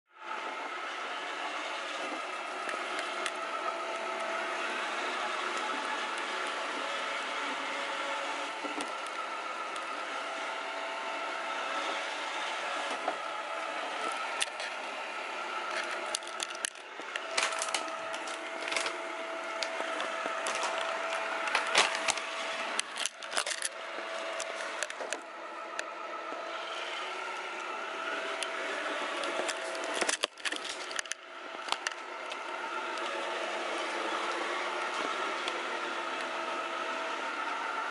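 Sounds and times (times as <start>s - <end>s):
robot vacuum whirring: 0.2s - 37.9s.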